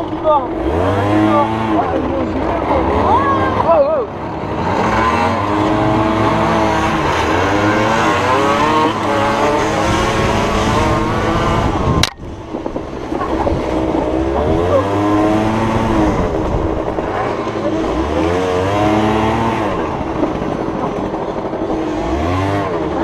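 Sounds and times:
dirt bike engines revving: 0.0s - 23.0s
sharp click: 12.0s - 12.2s.

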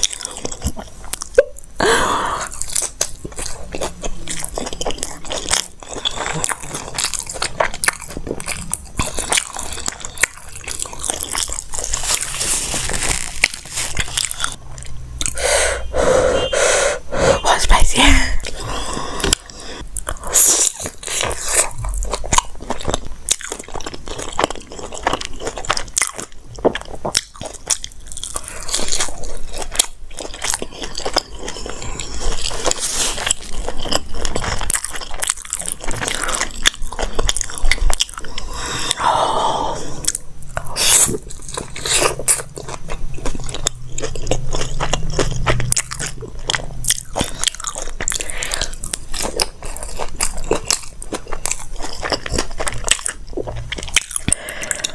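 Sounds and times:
biting and chewing food: 0.0s - 15.5s, 18.4s - 39.1s, 39.7s - 54.9s
wet mouth noises: 0.0s - 22.6s
small crunches: 4.6s - 14.6s.

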